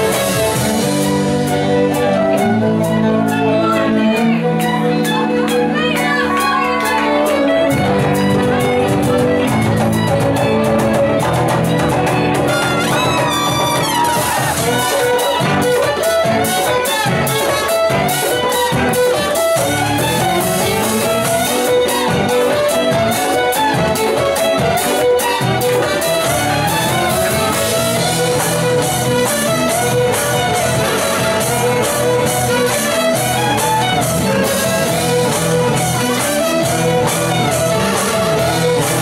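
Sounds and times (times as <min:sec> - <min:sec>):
fiddles playing melody: 0:00.0 - 0:39.0
brass with sousaphone: 0:12.5 - 0:14.9.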